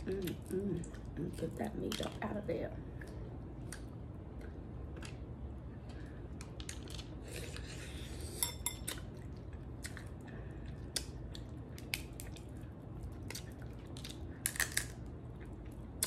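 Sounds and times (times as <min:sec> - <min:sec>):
chewing: 0:08.8 - 0:14.7
crab shell cracking: 0:13.2 - 0:15.1.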